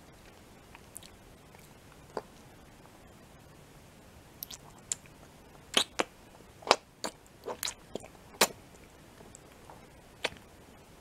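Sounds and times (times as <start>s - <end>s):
wet mouth clicks and smacks: 4.4s - 5.1s.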